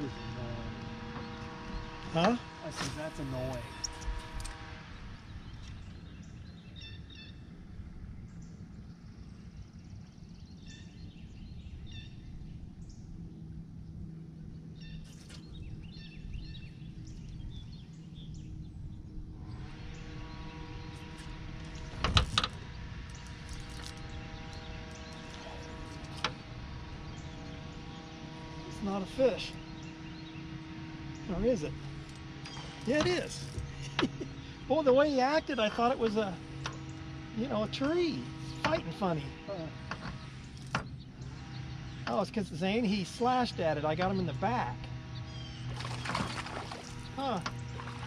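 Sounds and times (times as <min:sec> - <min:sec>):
motor hum: 0:00.0 - 0:48.0
bird chirping: 0:14.5 - 0:44.4, 0:45.0 - 0:48.0.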